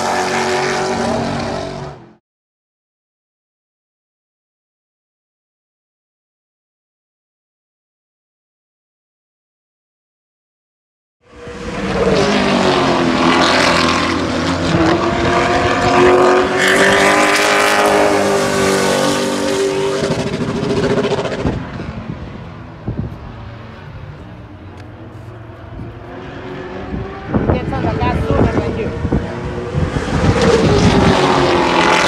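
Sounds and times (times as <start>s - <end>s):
race car engine passing: 0.0s - 2.2s, 11.3s - 32.0s.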